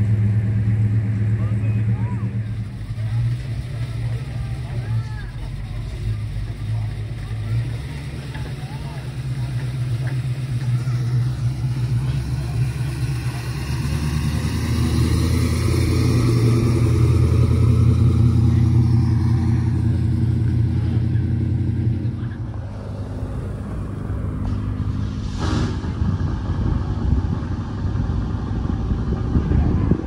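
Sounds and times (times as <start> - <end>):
car engine passing: 0.0 - 30.0
street noise with engines: 0.0 - 30.0
brief rush of noise: 24.4 - 26.5.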